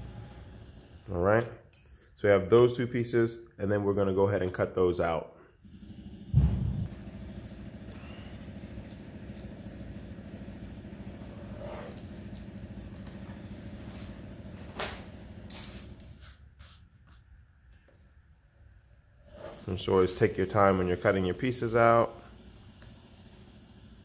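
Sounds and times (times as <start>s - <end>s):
machine droning with low hum: 0.0s - 2.5s, 5.5s - 16.4s.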